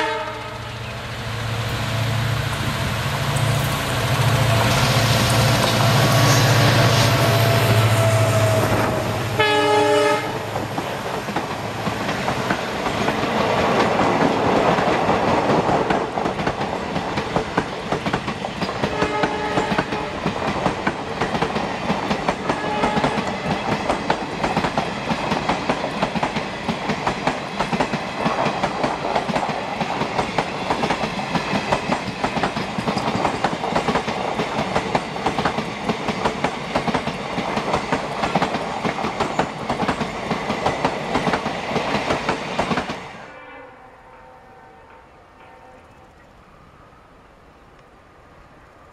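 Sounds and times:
train horn blast: 0.0 - 0.9, 5.7 - 10.6, 18.8 - 20.3, 22.5 - 23.4, 43.2 - 46.0
diesel locomotive engine drone: 0.0 - 14.5
wheels clacking over rail joints: 10.5 - 43.0.

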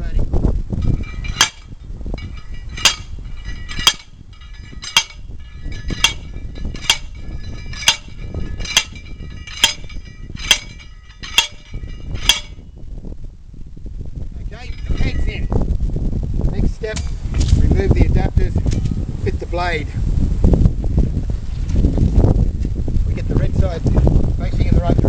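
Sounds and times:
post driver clanging on metal: 0.8 - 12.7, 14.5 - 15.5.

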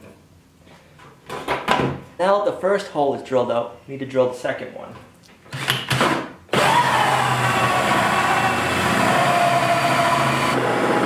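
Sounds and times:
cordless drill cutting plastic: 5.6 - 11.0.

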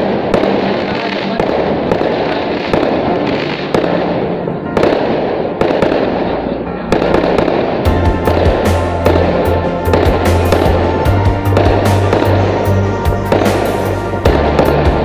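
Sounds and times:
fireworks crackling and banging: 0.0 - 15.0
deep steady drone: 7.6 - 15.0.

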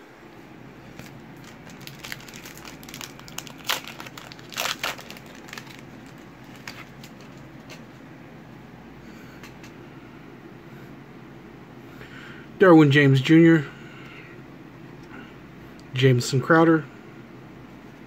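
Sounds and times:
card pack wrapper crinkling: 0.9 - 7.8.

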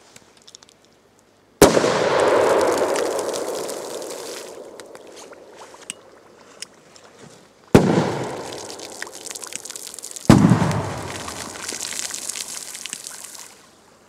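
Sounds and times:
firecrackers exploding in water: 1.6 - 5.2, 7.8 - 13.4
water drips: 2.4 - 6.4, 8.0 - 13.6.

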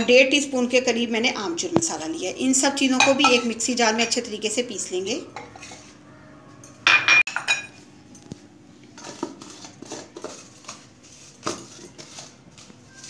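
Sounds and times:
glass bowls clinking on jar: 3.0 - 4.2, 6.9 - 7.8.

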